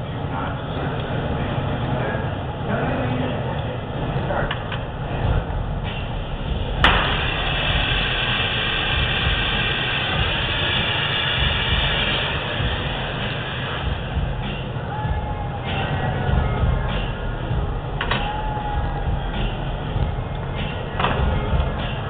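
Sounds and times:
low rumble: 0.0s - 22.0s
gas torch hissing: 6.8s - 14.8s.

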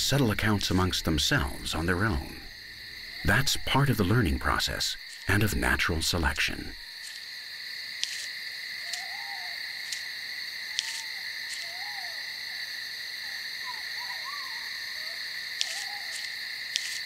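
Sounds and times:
insect chorus: 0.0s - 17.0s
rising-and-falling calls: 8.8s - 10.1s, 10.7s - 17.0s.

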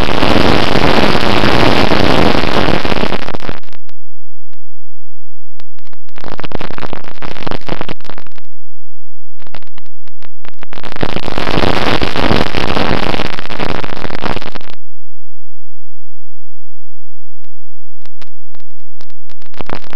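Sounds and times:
distorted rushing wind noise: 0.0s - 4.7s, 5.5s - 14.8s, 18.0s - 19.9s.

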